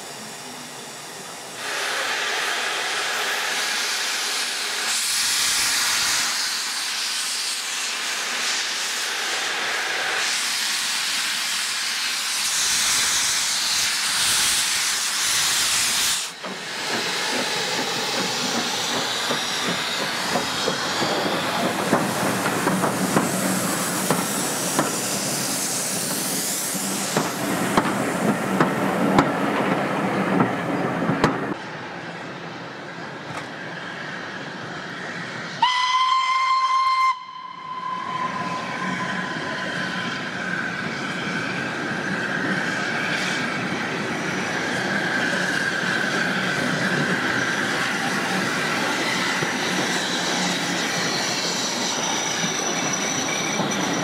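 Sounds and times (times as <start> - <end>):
steam locomotive hissing steam: 0.0 - 54.0.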